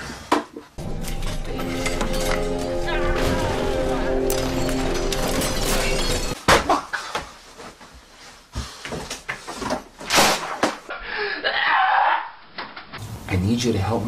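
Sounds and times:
objects banging and crashing: 0:00.3 - 0:06.8
music: 0:00.8 - 0:06.4.

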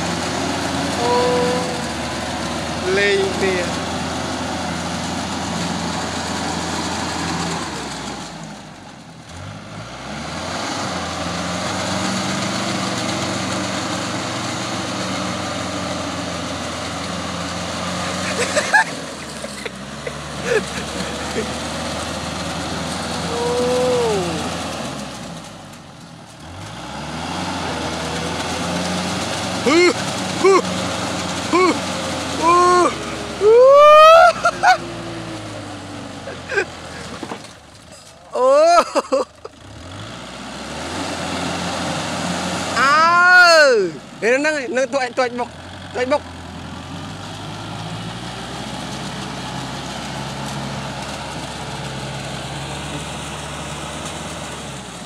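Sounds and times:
tractor engine revving: 0:00.0 - 0:55.0.

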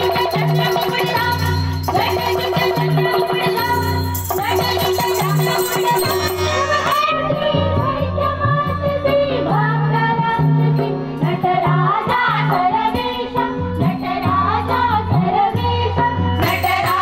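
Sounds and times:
small hand cymbals: 0:00.0 - 0:07.2
tabla: 0:00.0 - 0:17.0
women singing in unison: 0:00.0 - 0:17.0
harmonium drone: 0:04.4 - 0:11.3.

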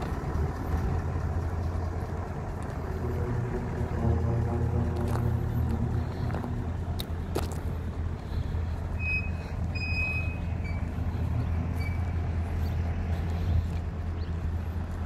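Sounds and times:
diesel truck engine running: 0:00.0 - 0:15.0.

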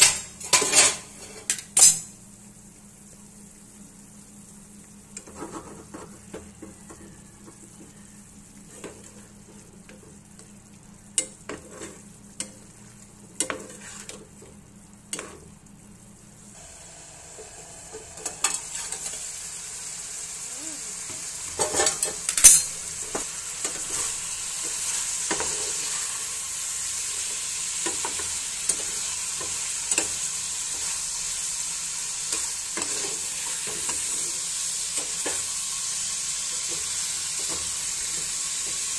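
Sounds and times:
stew sizzling in skillet: 0:00.0 - 0:38.9
metal spatula scraping pan: 0:18.2 - 0:19.2.

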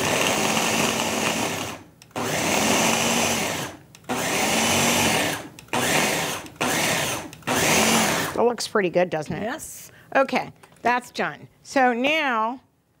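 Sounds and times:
food processor motor whirring: 0:00.0 - 0:08.4.

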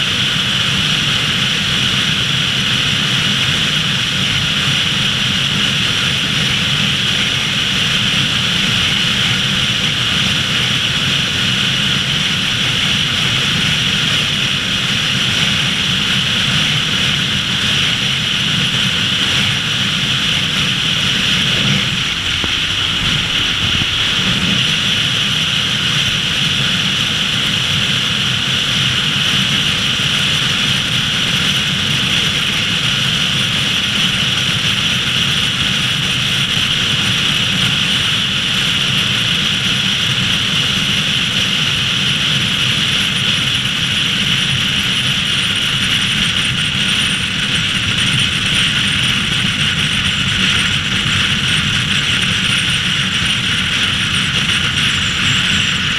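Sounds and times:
car road noise: 0:04.3 - 0:27.5, 0:44.5 - 0:55.9
wind rushing past car: 0:18.7 - 0:26.8.

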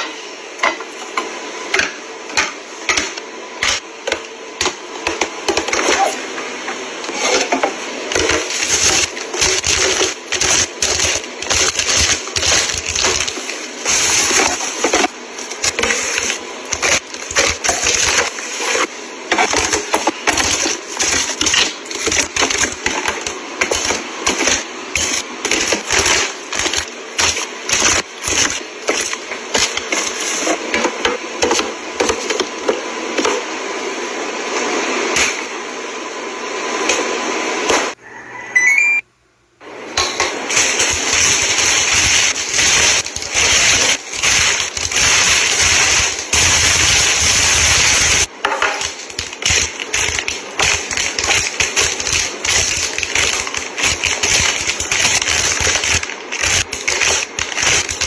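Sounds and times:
wrappers crinkling and rustling: 0:40.6 - 0:58.0.

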